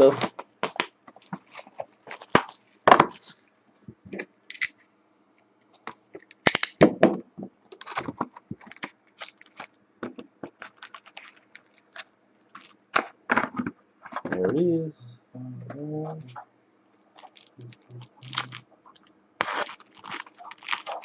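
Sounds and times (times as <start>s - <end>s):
plastic wrap crinkling: 0.0s - 3.4s, 7.8s - 9.8s, 10.4s - 13.1s, 16.9s - 21.0s.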